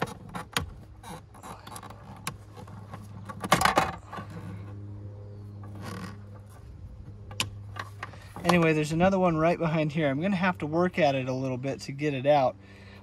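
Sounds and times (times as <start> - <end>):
scraping rustle: 0.0 - 4.8
steady low hum: 0.0 - 13.0.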